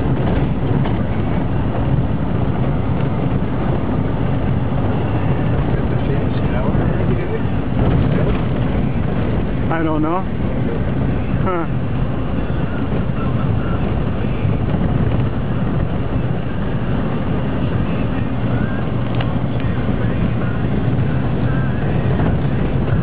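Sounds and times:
car engine and tyre hum: 0.0s - 23.0s.

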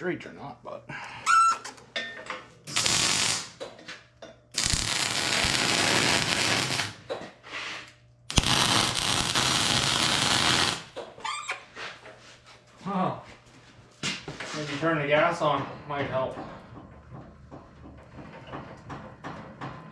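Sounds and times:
welding arc crackling: 2.7s - 3.7s, 4.6s - 7.0s, 8.3s - 11.0s.

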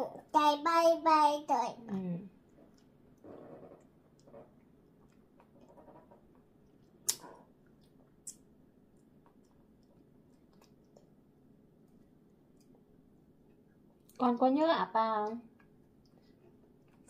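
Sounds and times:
child sucking and chewing: 2.5s - 11.2s, 15.5s - 17.0s.

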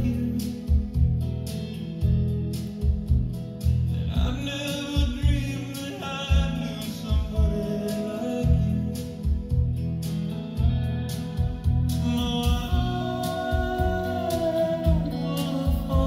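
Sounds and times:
song with singer from cassette: 0.0s - 1.6s, 4.0s - 9.6s, 11.9s - 16.0s.

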